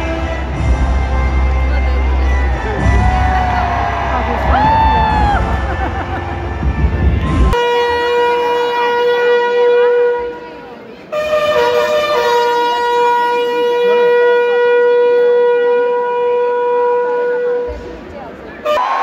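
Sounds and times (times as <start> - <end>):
faint crowd chatter: 0.0 - 19.0.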